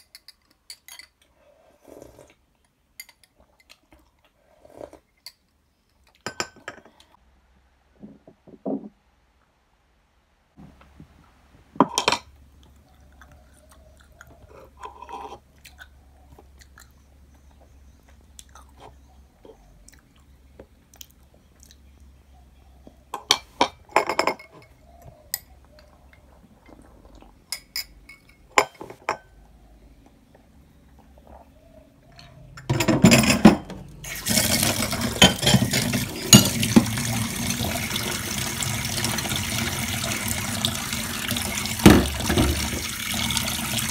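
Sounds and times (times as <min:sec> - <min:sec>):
spoon clinking on glass and dishes: 0:00.0 - 0:01.2, 0:06.2 - 0:07.0, 0:27.5 - 0:29.3
glass and cutlery clinking: 0:06.2 - 0:06.9, 0:34.3 - 0:36.7
tap water running into sink: 0:34.1 - 0:43.9.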